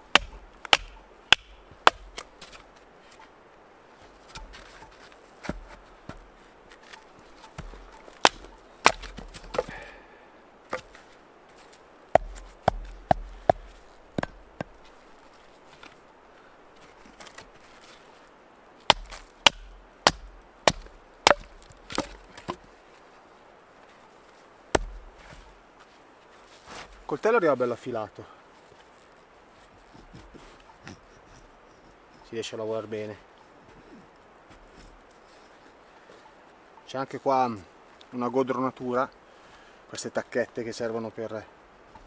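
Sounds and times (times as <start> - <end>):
knife splitting firewood: 0.0 - 3.2, 4.2 - 10.0, 10.7 - 14.9, 18.8 - 22.7, 24.8 - 25.4.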